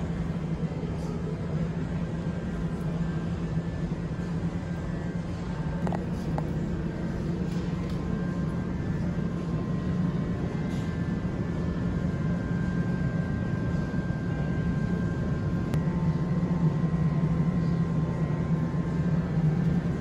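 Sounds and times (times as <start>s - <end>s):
low store hum: 0.0s - 20.0s.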